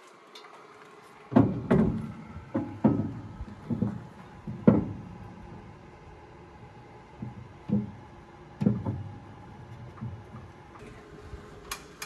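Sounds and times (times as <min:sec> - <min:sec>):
knocks and bangs on metal: 0:01.3 - 0:05.2, 0:07.2 - 0:09.2.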